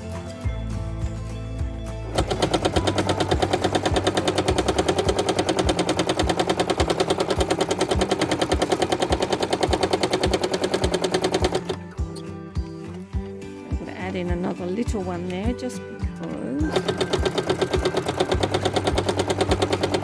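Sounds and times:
sewing machine stitching: 2.1 - 12.3, 16.6 - 20.0.

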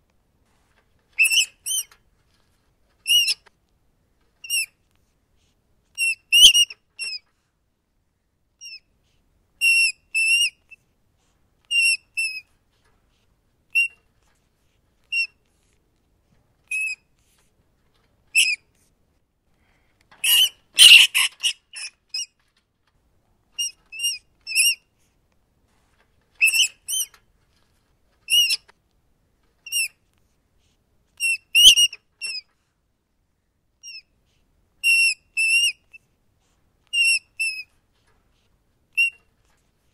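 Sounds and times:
rats squeaking: 1.0 - 3.5, 4.4 - 4.7, 6.0 - 7.3, 8.6 - 8.9, 9.6 - 10.8, 11.7 - 12.5, 13.7 - 14.3, 15.0 - 15.4, 16.7 - 17.4, 18.3 - 18.7, 20.2 - 22.6, 23.5 - 25.0, 26.3 - 28.8, 29.6 - 30.0, 31.2 - 32.5, 33.8 - 34.1, 34.8 - 36.1, 36.9 - 37.8, 38.9 - 39.5.

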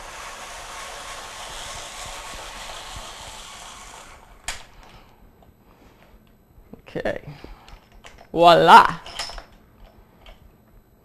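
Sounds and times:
apple peeler shaving peel: 0.0 - 4.7.

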